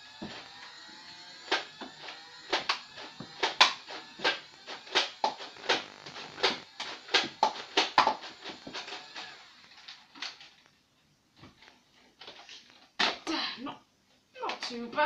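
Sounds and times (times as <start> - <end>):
toy blaster firing clacks: 0.2 - 5.8, 6.4 - 10.5.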